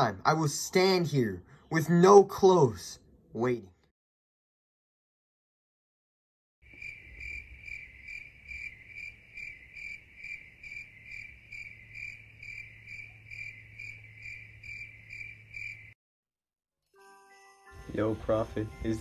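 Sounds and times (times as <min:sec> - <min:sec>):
cricket chirping: 0:06.6 - 0:16.0.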